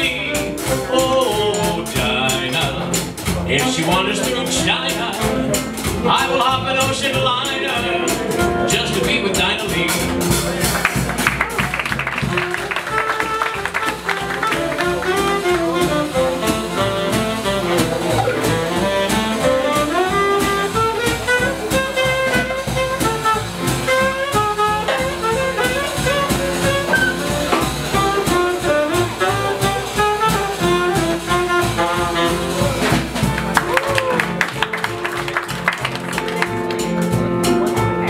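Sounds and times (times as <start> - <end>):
swing jazz band: 0.0 - 38.0
alto saxophone solo: 11.4 - 35.2.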